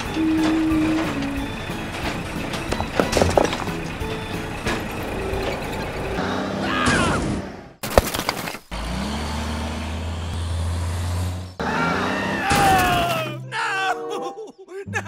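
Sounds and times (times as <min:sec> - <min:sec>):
low truck engine hum: 0:00.0 - 0:06.6, 0:08.6 - 0:12.4.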